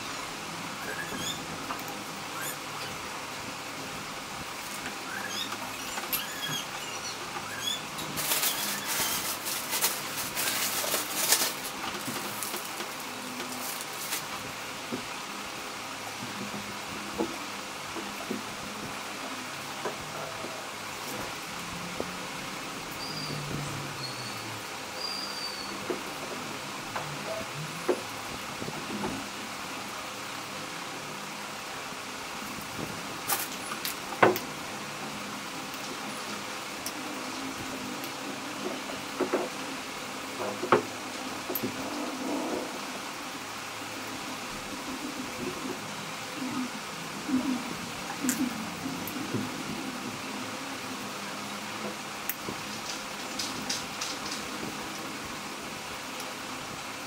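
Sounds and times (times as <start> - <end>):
room hiss with fan hum: 0.0 - 57.0
loud rustling and scraping: 4.4 - 14.6.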